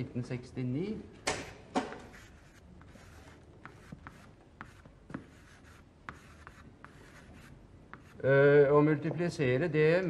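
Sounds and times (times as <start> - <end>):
chalk tapping on blackboard: 1.8 - 8.2
chalk scratching on blackboard: 2.0 - 8.2.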